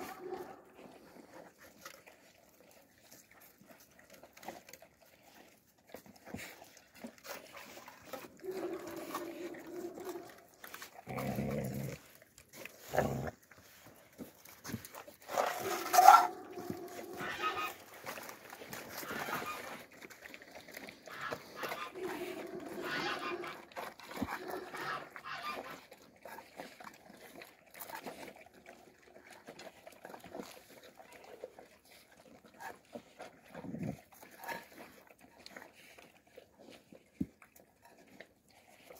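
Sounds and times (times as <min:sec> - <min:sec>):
puppies yelping: 0:08.1 - 0:11.6, 0:15.6 - 0:18.1, 0:21.1 - 0:25.8.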